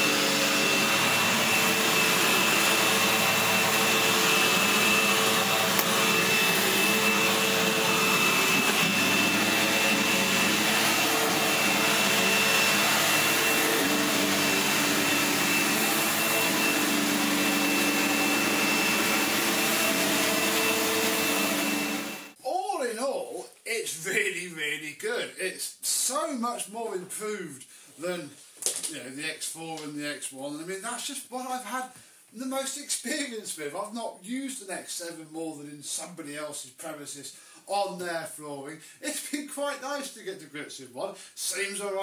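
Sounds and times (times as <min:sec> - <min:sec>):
vacuum cleaner running on carpet: 0:00.0 - 0:22.4.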